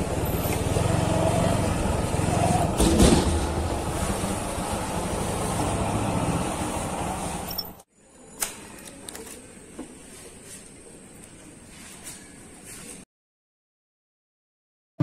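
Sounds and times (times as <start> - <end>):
motorcycle engine running: 0.0 - 7.5.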